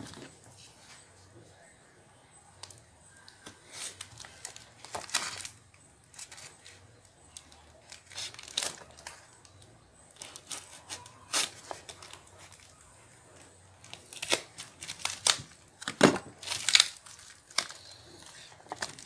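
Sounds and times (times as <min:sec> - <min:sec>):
blade cutting packing tape: 0:10.2 - 0:12.2.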